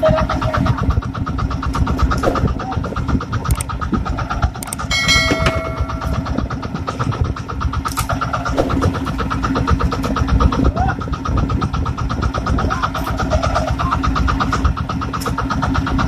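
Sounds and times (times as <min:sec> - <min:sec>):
boat engine running: 0:00.0 - 0:16.0
brief ringing tone: 0:04.9 - 0:06.5.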